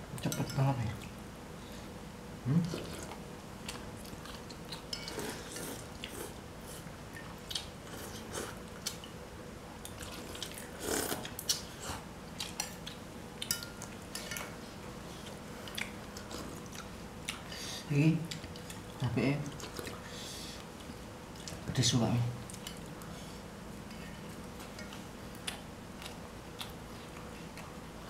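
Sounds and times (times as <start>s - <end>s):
chewing and lip-smacking: 2.7s - 6.4s, 7.1s - 9.2s, 9.8s - 14.5s, 15.2s - 17.5s, 20.6s - 21.6s, 22.4s - 23.1s, 24.3s - 28.0s.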